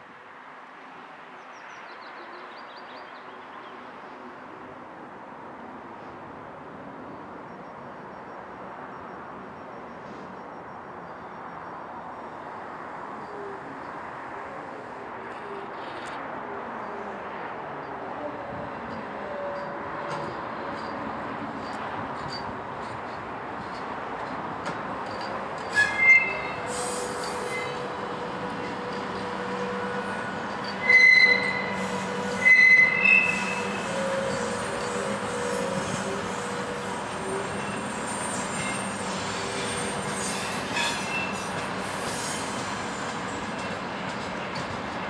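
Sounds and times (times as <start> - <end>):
locomotive hum: 10.0 - 45.0
electric freight train rumbling: 17.2 - 45.0
wheel squeals: 25.1 - 27.9, 29.5 - 43.7.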